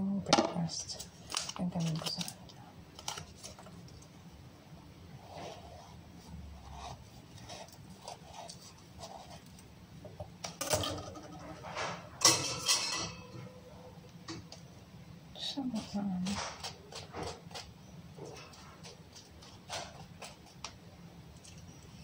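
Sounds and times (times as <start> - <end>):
knife cutting avocado: 6.6 - 9.6, 15.8 - 20.8.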